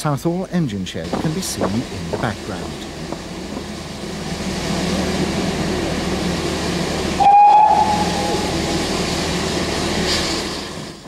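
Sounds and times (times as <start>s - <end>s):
steam locomotive rumble and hiss: 0.0s - 11.0s
steam whistle blast: 7.2s - 8.7s.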